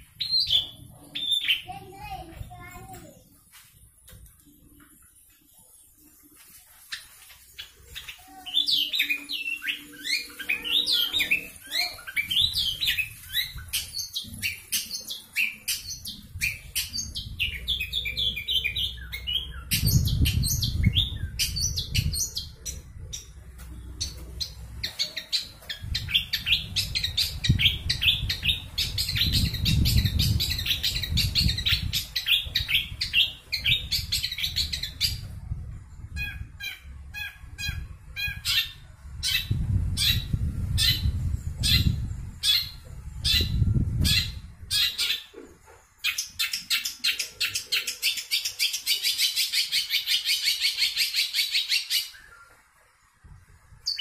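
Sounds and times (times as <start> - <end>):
bird singing fast chirps and trills: 0.0 - 2.5, 6.8 - 35.3, 36.0 - 45.3, 45.9 - 52.5, 53.8 - 54.0
low rumbling noise: 15.9 - 44.8.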